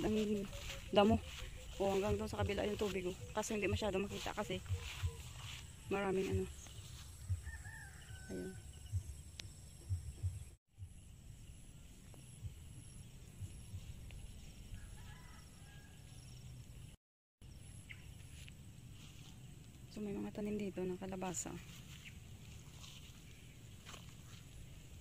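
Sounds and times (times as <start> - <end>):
distant bird calls: 0.0 - 10.6.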